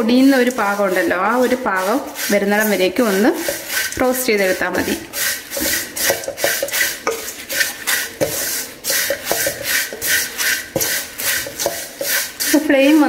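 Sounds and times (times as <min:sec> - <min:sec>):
spatula scraping rice flakes: 0:00.0 - 0:13.0
spatula knocking against pan: 0:06.0 - 0:12.2.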